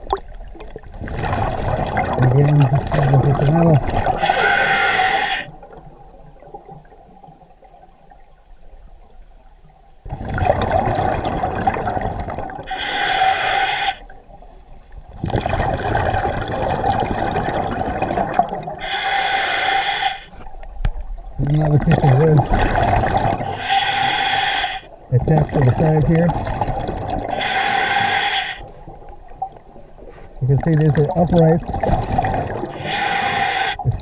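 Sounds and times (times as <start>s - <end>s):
faint water noise: 0.0s - 34.0s
scuba regulator breathing: 4.2s - 5.5s, 12.6s - 14.1s, 18.8s - 20.4s, 23.4s - 24.9s, 27.2s - 28.7s, 32.6s - 33.8s.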